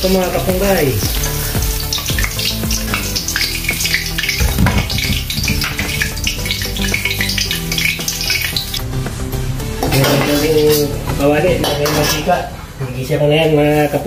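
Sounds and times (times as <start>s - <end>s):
hot oil sizzling: 0.0s - 12.8s
background music: 0.0s - 13.4s
metal ladle scraping a wok: 11.6s - 12.5s.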